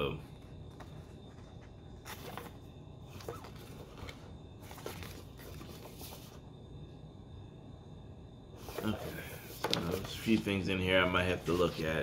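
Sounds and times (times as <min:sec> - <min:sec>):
paper pages rustling: 0:00.7 - 0:06.4, 0:08.6 - 0:12.0.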